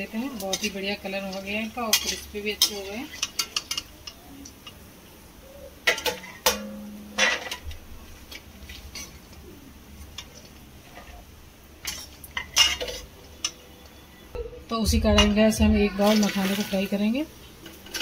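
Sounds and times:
metal spatula scraping metal pan: 0.4s - 3.8s.

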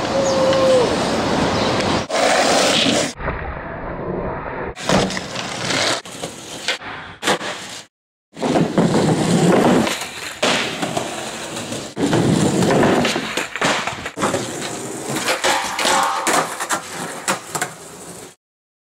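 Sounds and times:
skateboard wheels on concrete: 0.0s - 18.4s
skateboard clacks: 8.4s - 18.2s.

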